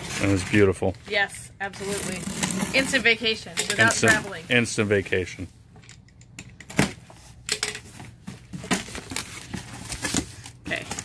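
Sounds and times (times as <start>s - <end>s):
cardboard rustling and scraping: 0.0s - 3.2s, 6.9s - 11.0s.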